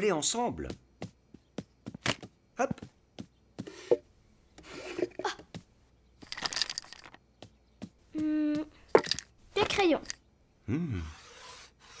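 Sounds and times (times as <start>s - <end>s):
crayons rattling in box: 6.2s - 7.2s, 9.0s - 10.2s.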